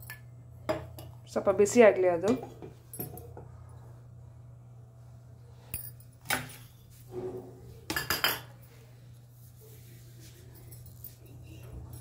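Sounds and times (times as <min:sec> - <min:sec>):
steady low hum: 0:00.0 - 0:12.0
utensils and dishes clinking: 0:07.4 - 0:08.6.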